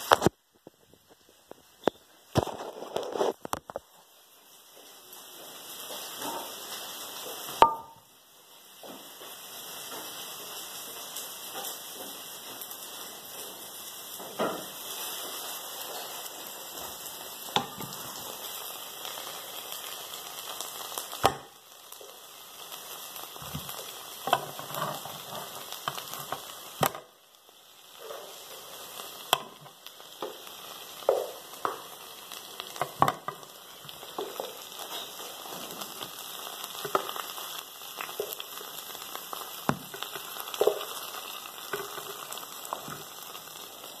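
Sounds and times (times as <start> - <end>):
ribs sizzling in frying pan: 1.5 - 44.0
wooden spatula knocking and scraping: 7.6 - 8.0, 17.6 - 18.2, 23.4 - 27.0.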